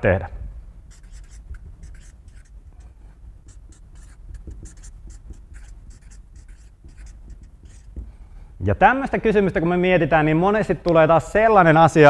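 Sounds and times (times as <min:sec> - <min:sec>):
marker pen scratching on paper: 0:00.9 - 0:08.2.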